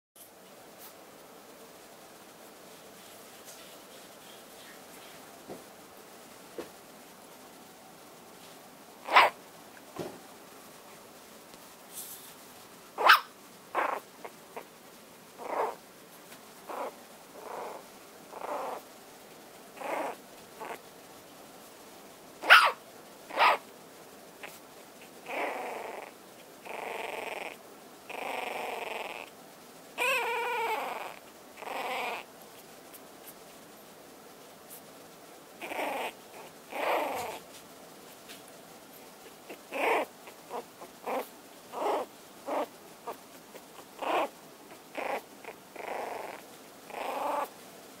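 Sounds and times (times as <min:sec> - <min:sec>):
puppy whining: 0:09.0 - 0:09.4, 0:13.0 - 0:14.7, 0:15.4 - 0:15.8, 0:16.6 - 0:18.9, 0:19.8 - 0:20.8, 0:24.4 - 0:29.3, 0:30.0 - 0:32.3, 0:35.6 - 0:37.5, 0:39.1 - 0:47.5
puppy yelps: 0:09.0 - 0:09.4, 0:13.0 - 0:14.0, 0:22.4 - 0:23.6, 0:30.0 - 0:32.3, 0:35.6 - 0:37.4, 0:39.5 - 0:43.2, 0:43.8 - 0:44.3, 0:44.9 - 0:47.5
puppies snuffling: 0:15.4 - 0:18.9, 0:19.7 - 0:20.8, 0:35.6 - 0:47.6
puppies squeaking and whimpering: 0:30.0 - 0:32.2.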